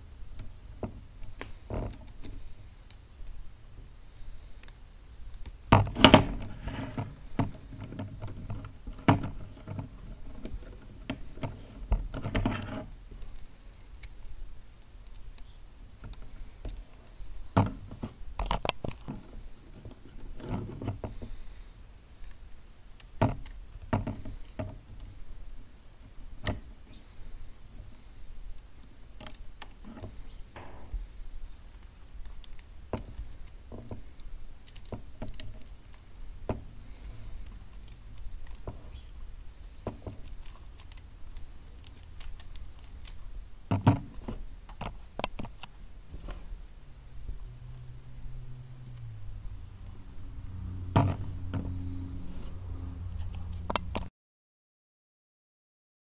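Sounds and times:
plastic pieces clicking together: 31.8 - 33.6, 34.2 - 36.0, 40.1 - 43.2.

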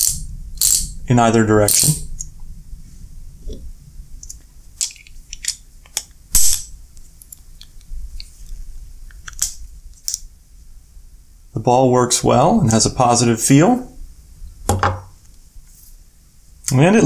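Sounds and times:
ratchet clicking: 0.0 - 0.9, 1.7 - 2.0.

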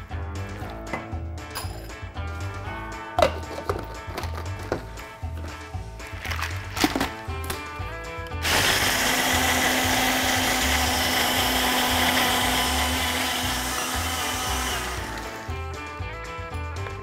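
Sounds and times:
blender motor running: 8.4 - 15.6.

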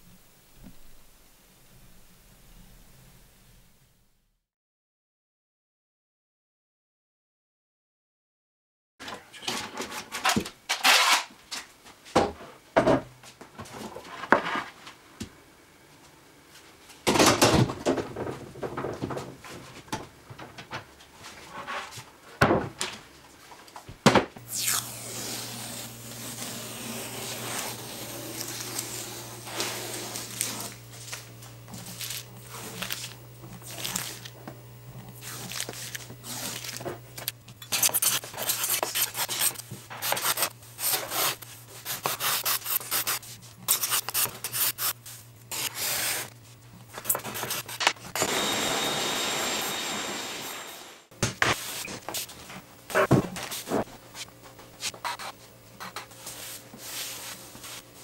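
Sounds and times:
steady low hum: 24.4 - 48.5
card scraper scraping wood: 25.0 - 30.9, 35.1 - 36.8, 37.7 - 46.3, 47.0 - 48.1.

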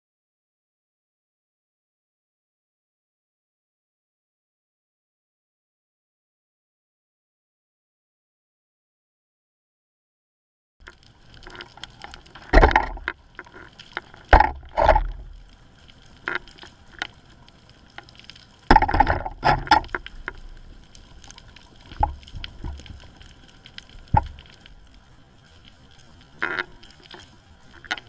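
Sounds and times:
underwater bubbling and gurgling: 10.8 - 28.0.

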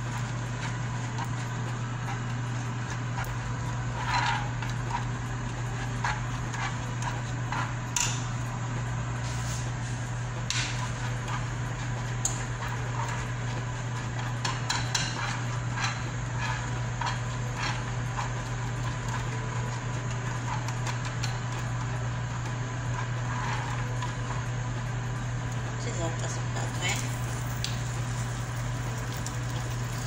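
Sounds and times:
metal spoon scraping pan: 14.1 - 18.3.

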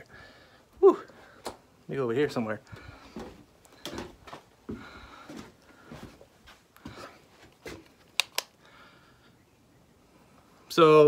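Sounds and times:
shuffling footsteps on floor: 2.7 - 7.9
sharp clicks: 8.1 - 8.6.

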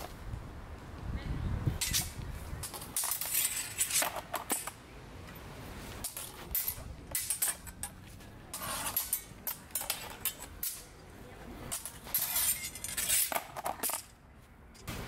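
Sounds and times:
steel swords clashing: 6.0 - 11.0, 11.7 - 14.2.

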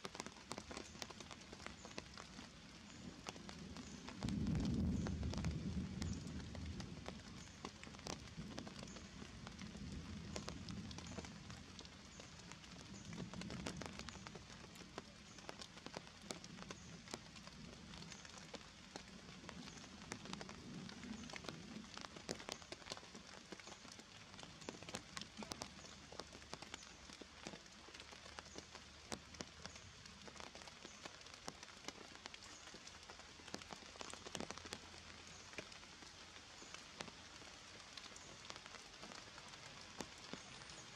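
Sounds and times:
raindrops falling on leaves: 0.0 - 40.9.

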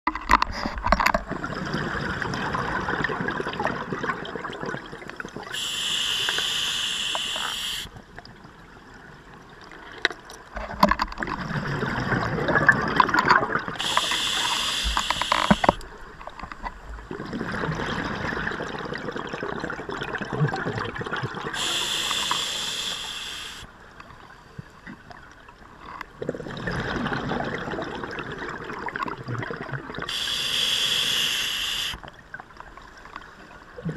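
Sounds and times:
regulator inhalation hiss: 5.5 - 7.9, 13.8 - 15.8, 21.6 - 23.7, 30.1 - 32.0.

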